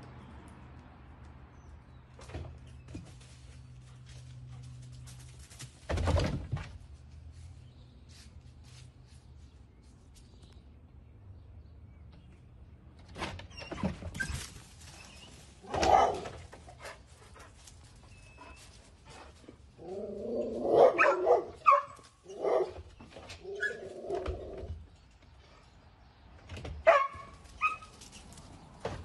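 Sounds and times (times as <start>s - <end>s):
dog barking: 15.7s - 16.4s, 20.6s - 22.8s, 26.8s - 27.8s.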